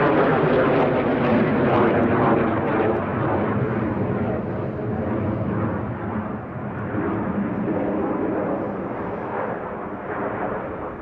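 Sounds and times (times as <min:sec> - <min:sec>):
jet engine rumble: 0:00.0 - 0:11.0.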